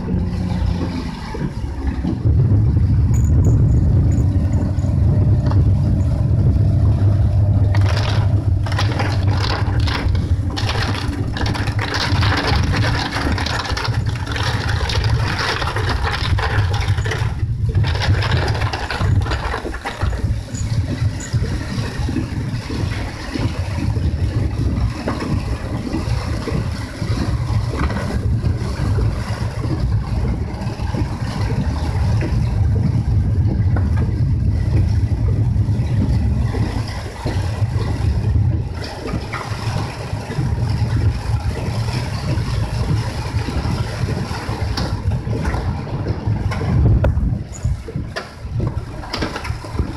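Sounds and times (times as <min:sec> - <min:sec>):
engine and road noise: 0:00.0 - 0:49.9
heavy rain on car roof: 0:00.0 - 0:49.9
windshield wipers sweeping: 0:00.0 - 0:49.9.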